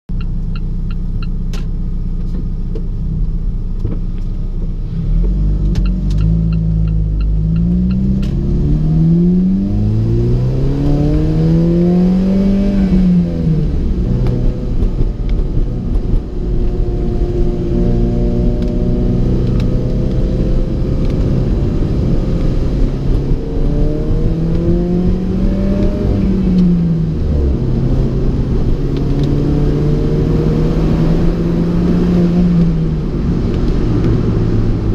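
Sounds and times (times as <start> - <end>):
car engine accelerating: 0.1 - 34.9
road noise: 0.1 - 34.9.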